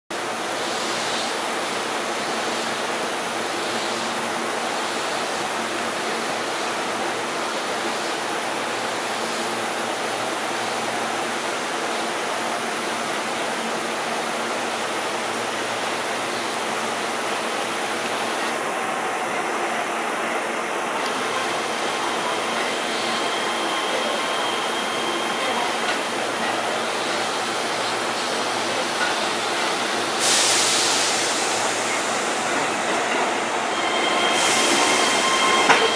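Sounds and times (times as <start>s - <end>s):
electric train rolling over points: 20.9s - 35.9s.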